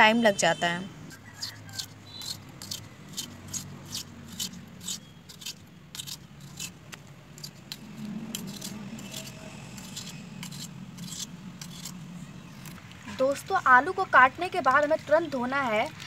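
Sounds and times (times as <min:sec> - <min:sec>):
knife slicing potato: 0:01.4 - 0:12.0.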